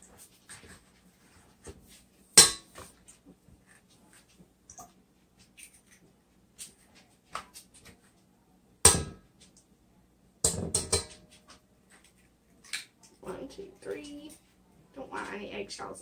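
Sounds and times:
eggs knocking on metal bowl: 0:10.4 - 0:11.2.

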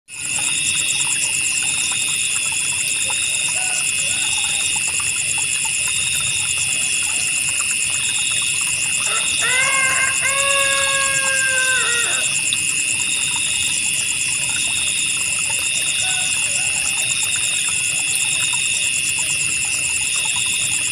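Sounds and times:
crickets trilling: 0:00.1 - 0:20.9
flowing water hiss: 0:00.1 - 0:20.9
insect chirping in bursts: 0:00.1 - 0:20.9
held falling call: 0:09.1 - 0:12.4.

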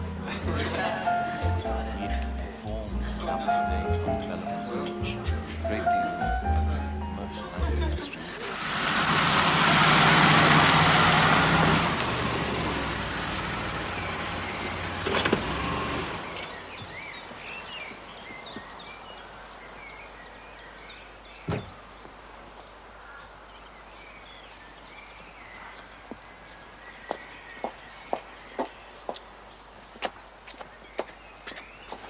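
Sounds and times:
birds chirping: 0:00.0 - 0:32.0
motor engine running: 0:08.4 - 0:16.6.

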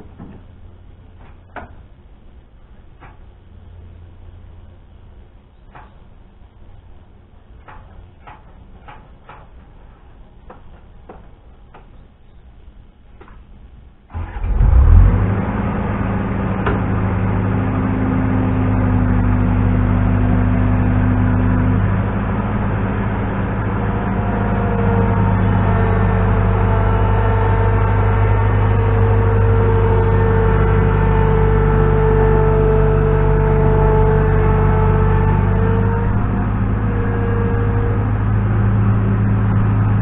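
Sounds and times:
hydraulic whine: 0:14.1 - 0:40.0
skid steer diesel engine: 0:14.1 - 0:40.0.

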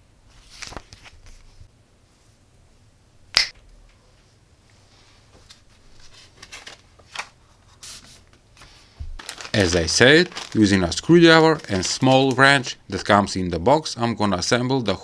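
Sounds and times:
paper rustling: 0:00.3 - 0:01.6, 0:05.4 - 0:12.7
sharp click: 0:03.3 - 0:03.6.

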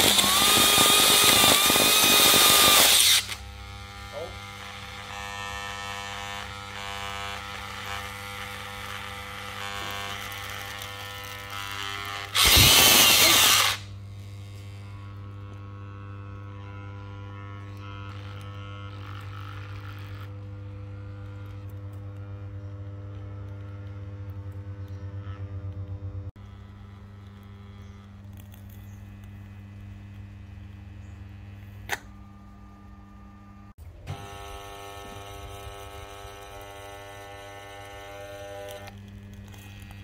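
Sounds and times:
motor failing burst: 0:00.0 - 0:04.6, 0:12.2 - 0:13.9
jigsaw motor whining: 0:00.0 - 0:25.6, 0:34.1 - 0:40.0
steady low hum: 0:20.2 - 0:40.0.

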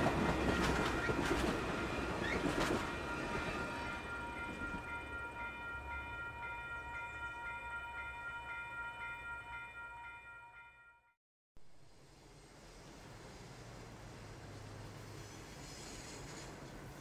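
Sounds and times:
train rumble: 0:00.0 - 0:08.5
crossing warning bell ringing: 0:00.0 - 0:11.2.

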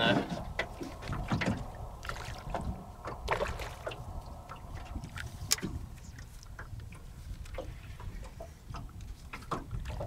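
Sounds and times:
water splashing around boat: 0:00.0 - 0:10.0.

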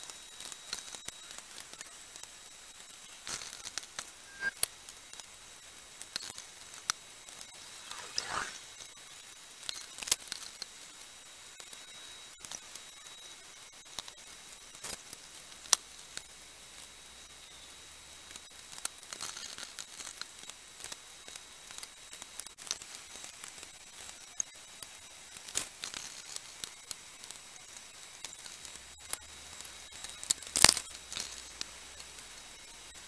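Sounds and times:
faint high whine: 0:04.1 - 0:04.6, 0:07.5 - 0:08.6
hands and tools working clay: 0:07.6 - 0:08.6.

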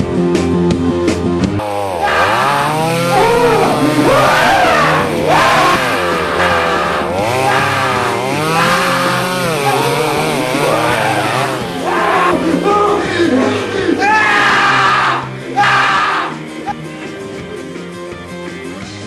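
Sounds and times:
chainsaw engine revving: 0:01.6 - 0:15.4.

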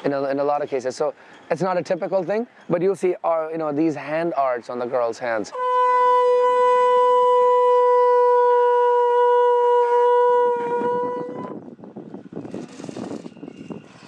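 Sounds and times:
conch shell blown: 0:05.5 - 0:11.7
rough noisy sound: 0:10.5 - 0:14.0.

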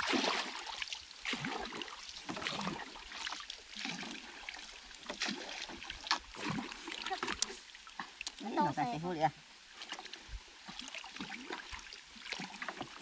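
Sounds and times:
water splashing in strokes: 0:00.0 - 0:09.0.

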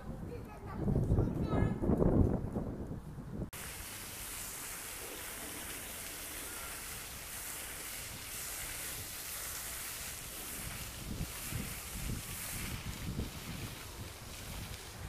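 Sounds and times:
steady hiss: 0:03.6 - 0:15.0.

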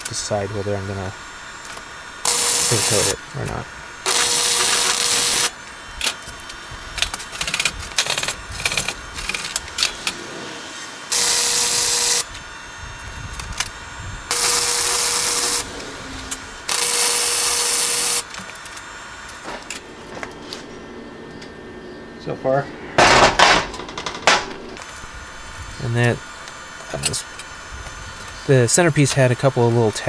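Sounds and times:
welder hissing: 0:00.0 - 0:21.3, 0:22.4 - 0:30.0.

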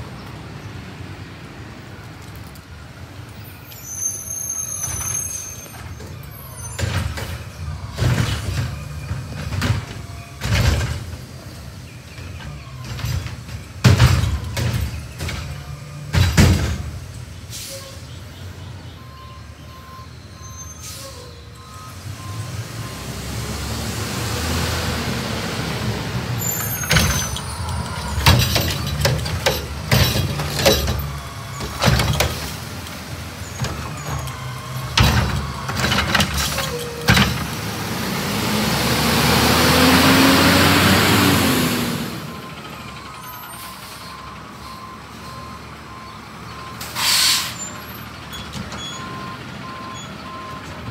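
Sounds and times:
carts banging and clanking: 0:04.8 - 0:17.2, 0:26.3 - 0:37.8
air brake hisses: 0:17.5 - 0:18.1, 0:46.8 - 0:47.7
garbage truck engine running: 0:25.2 - 0:46.5.

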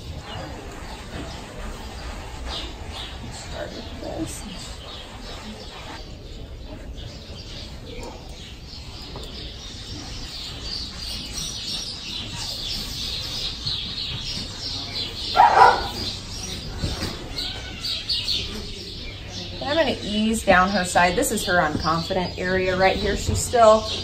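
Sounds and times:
curry comb scrubbing horse coat: 0:09.1 - 0:16.6.

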